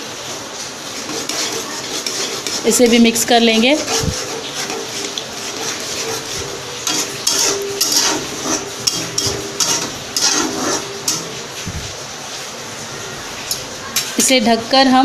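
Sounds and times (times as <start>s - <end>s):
spatula scraping a pan: 0.0s - 11.8s
sauce frying in oil: 0.0s - 15.0s.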